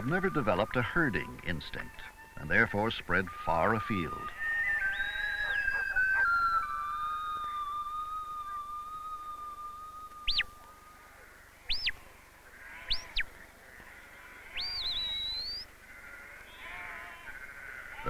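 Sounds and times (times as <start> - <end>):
sharp rising whistles: 4.2 - 10.6, 14.6 - 15.6
sheep bleating: 11.3 - 18.0.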